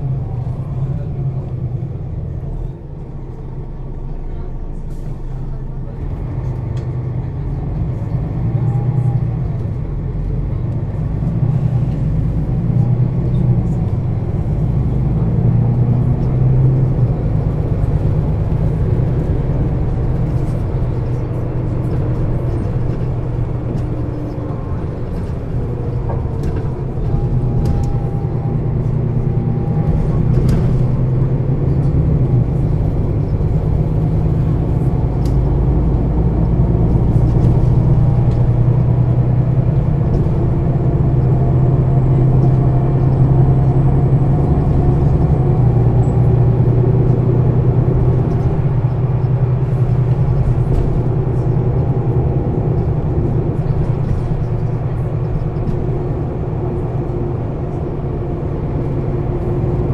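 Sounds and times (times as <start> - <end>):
bus diesel engine drone: 0.0 - 59.9.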